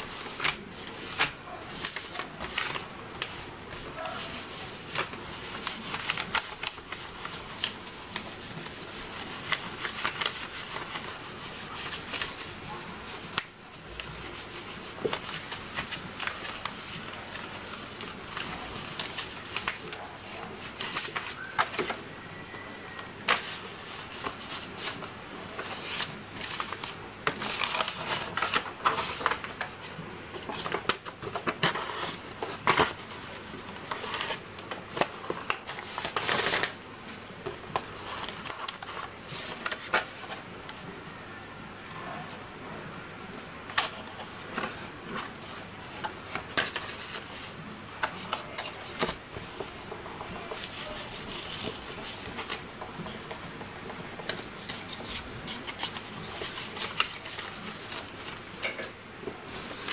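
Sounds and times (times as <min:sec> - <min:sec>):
hands rubbing paper: 0:00.0 - 0:21.9, 0:43.8 - 0:58.6, 0:59.4 - 0:59.9.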